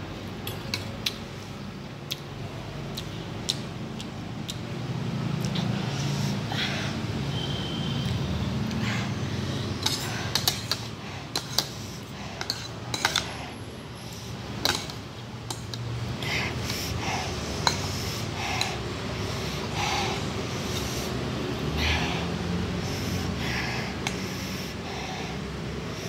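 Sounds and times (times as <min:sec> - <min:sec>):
cutlery clinking on ceramic bowl: 0:12.4 - 0:13.3.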